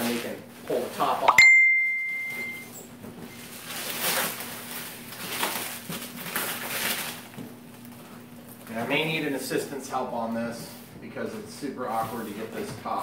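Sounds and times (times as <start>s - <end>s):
plastic wrap crinkling and tearing: 3.4s - 9.0s.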